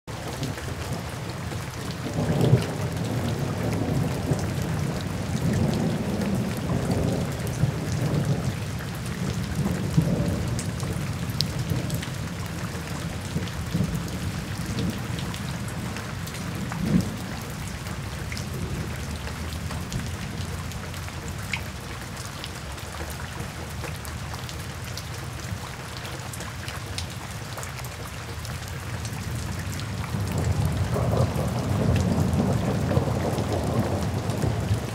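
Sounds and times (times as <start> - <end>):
steady rain: 0.1 - 34.9
low rolling thunder: 1.8 - 20.9, 29.1 - 34.9.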